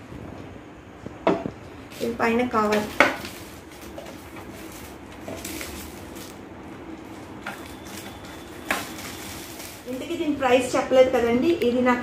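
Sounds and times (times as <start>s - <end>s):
plastic bag rustling and crinkling: 1.7s - 10.7s.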